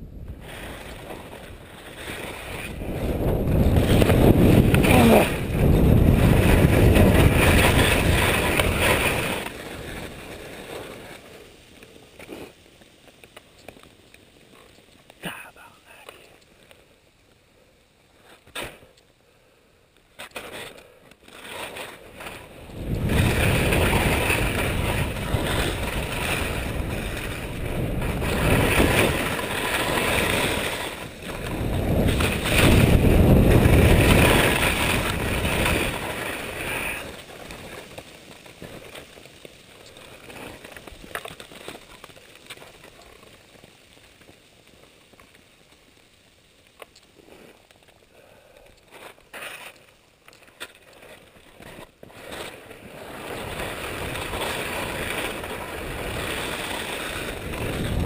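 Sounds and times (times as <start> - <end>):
wind on microphone: 0.0 - 10.0, 22.6 - 37.2, 53.5 - 58.0
ski edges scraping on snow: 0.2 - 16.9, 18.0 - 19.0, 20.0 - 58.0.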